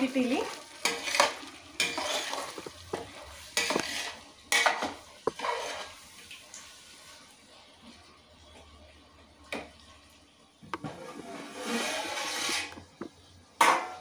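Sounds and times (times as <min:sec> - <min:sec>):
metal spoon scraping a pot: 0:00.8 - 0:06.0, 0:10.8 - 0:13.0.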